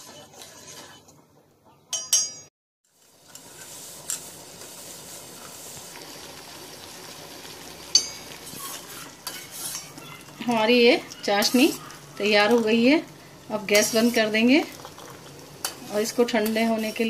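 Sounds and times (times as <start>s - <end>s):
spoon stirring in metal pot: 0.0s - 1.1s, 7.9s - 17.0s
spoon clinking against pot: 1.9s - 2.5s, 7.9s - 8.4s
syrup boiling and bubbling: 2.8s - 17.0s.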